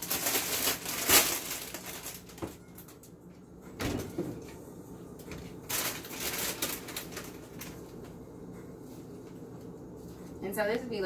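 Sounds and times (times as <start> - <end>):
rustling and clatter of containers: 0.0 - 3.1, 5.2 - 8.2.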